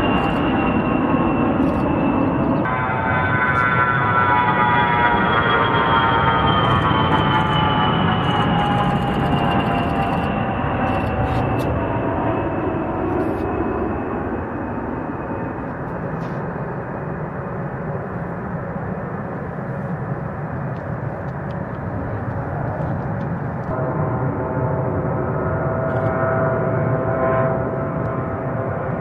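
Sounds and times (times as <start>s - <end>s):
jet engine roar: 0.0s - 29.0s
jet engine whining tones: 0.0s - 29.0s.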